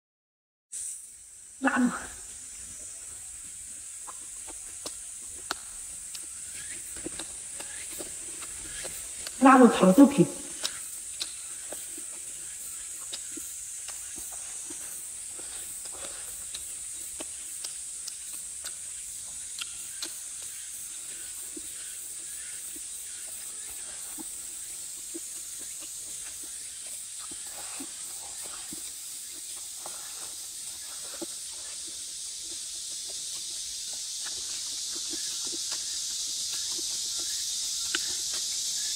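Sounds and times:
steady high hiss: 0:00.7 - 0:38.9
lip smacks and clicks: 0:04.0 - 0:09.4, 0:10.4 - 0:24.4, 0:25.0 - 0:30.2, 0:30.8 - 0:38.9
person chewing and biting: 0:04.1 - 0:09.4, 0:10.5 - 0:20.6, 0:23.6 - 0:38.9.

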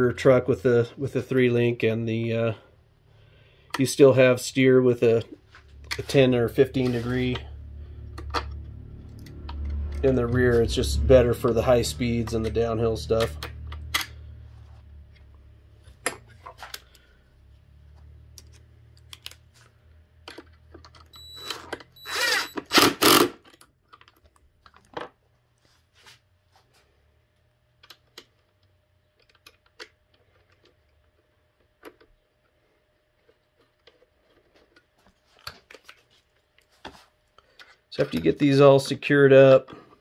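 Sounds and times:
power tool burst: 0:22.0 - 0:23.4.

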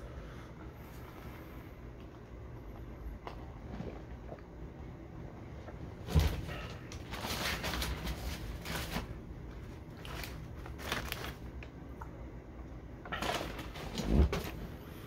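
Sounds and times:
paper bag rustling and crinkling: 0:06.1 - 0:11.5.

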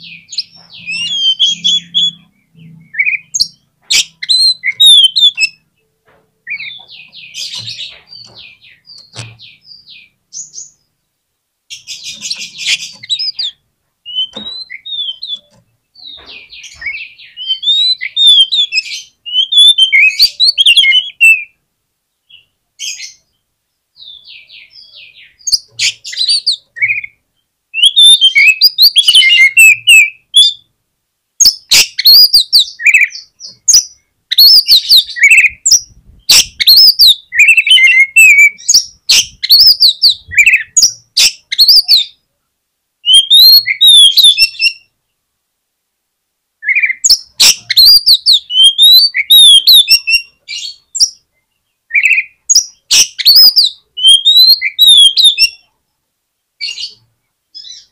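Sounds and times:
bird singing whistled phrases: 0:00.0 - 0:05.6, 0:12.0 - 0:21.6, 0:27.8 - 0:30.6, 0:31.4 - 0:42.2, 0:43.0 - 0:44.9, 0:46.6 - 0:51.2, 0:51.9 - 0:55.6.

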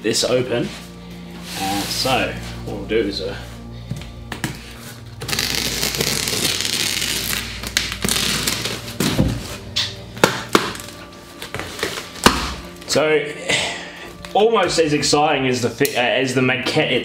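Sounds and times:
knife slitting packing tape: 0:05.2 - 0:08.7.

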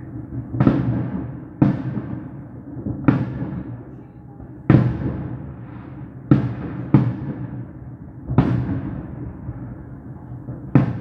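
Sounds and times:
fireworks booming: 0:00.0 - 0:11.0.

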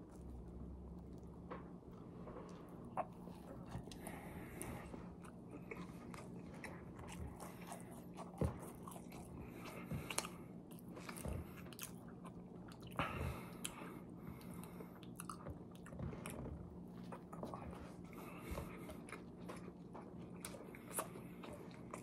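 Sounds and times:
person chewing a burger: 0:00.0 - 0:22.0.

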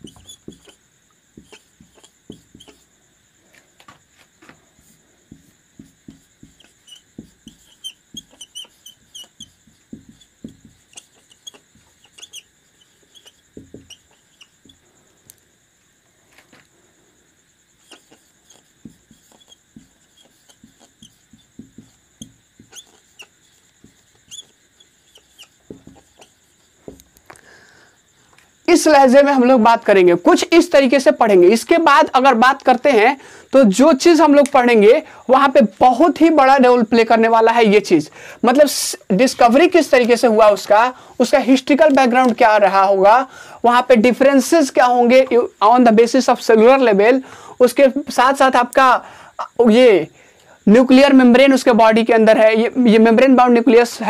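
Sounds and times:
marker squeaking on whiteboard: 0:00.0 - 0:03.0, 0:04.8 - 0:14.8, 0:17.8 - 0:27.1.

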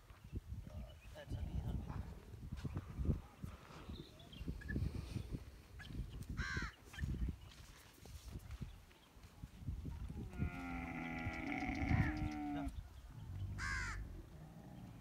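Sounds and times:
camel moaning call: 0:10.3 - 0:12.8.

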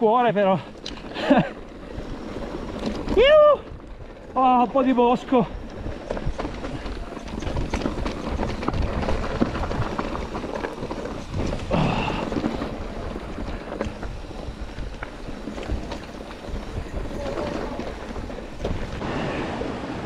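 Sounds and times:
bike clicks and rattles: 0:00.0 - 0:19.0
bike tyre rumble: 0:00.0 - 0:20.0
wind on microphone: 0:11.1 - 0:20.0.

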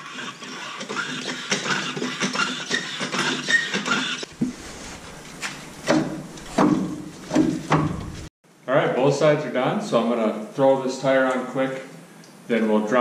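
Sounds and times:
sharp metal clunks: 0:05.4 - 0:08.3.

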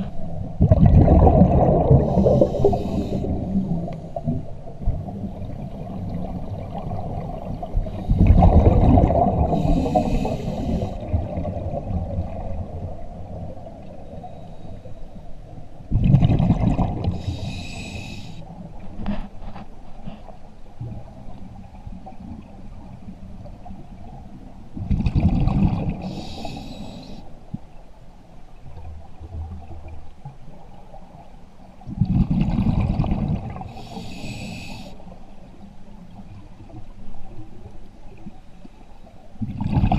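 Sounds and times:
exhaled bubbles rumbling: 0:00.0 - 0:14.1, 0:15.8 - 0:17.4, 0:20.8 - 0:26.2, 0:31.8 - 0:33.9, 0:39.4 - 0:39.9
regulator hiss: 0:17.2 - 0:18.4, 0:33.8 - 0:35.0.

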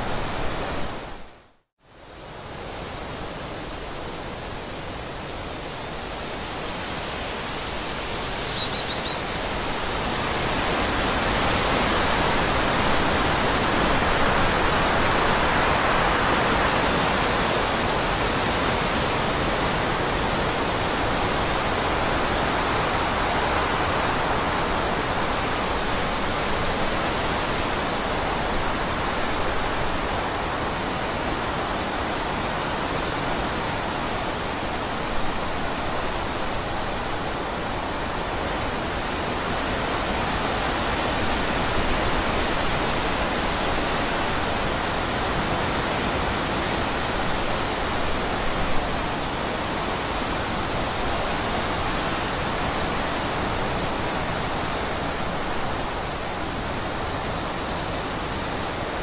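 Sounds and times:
high bird chirp: 0:03.7 - 0:04.3, 0:08.4 - 0:09.2.

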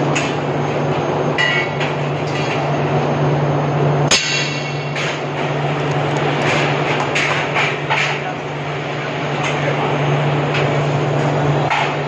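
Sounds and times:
sharp metallic knock: 0:04.1 - 0:05.2.

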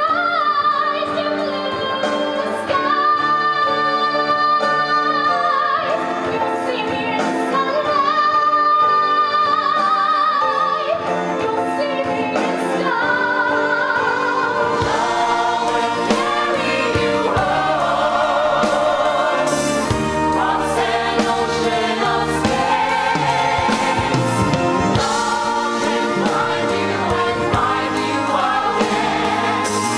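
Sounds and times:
instrumental accompaniment: 0:11.0 - 0:29.9
ensemble singing in chorus: 0:14.0 - 0:29.9.

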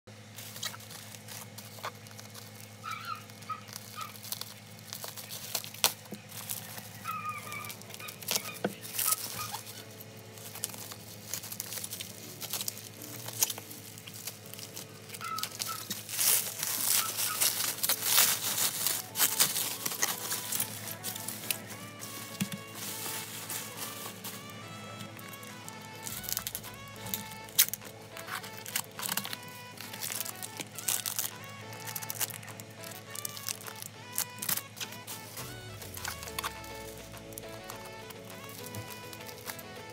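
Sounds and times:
bubble wrap crinkling: 0:00.1 - 0:39.9
scissors cutting: 0:14.4 - 0:39.9.

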